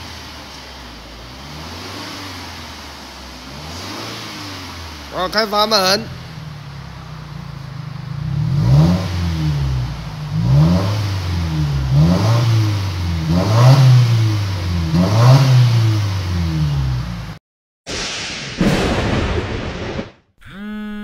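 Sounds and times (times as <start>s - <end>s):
car engine revving: 0.0s - 17.4s.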